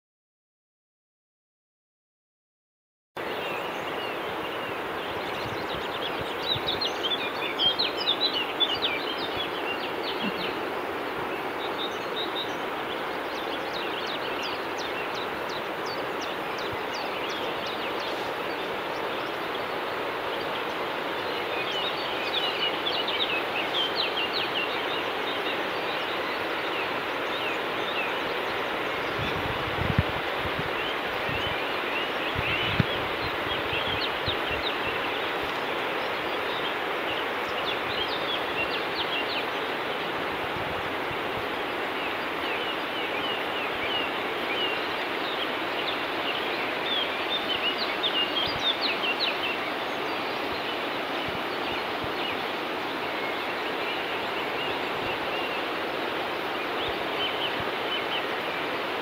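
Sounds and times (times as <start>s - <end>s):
distant mountain torrent rushing: 3.2s - 59.0s
songbirds chirping: 3.2s - 59.0s.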